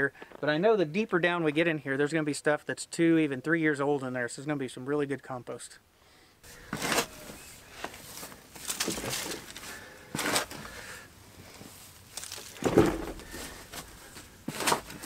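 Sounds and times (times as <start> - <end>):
shovel scraping into compost: 6.5 - 15.0.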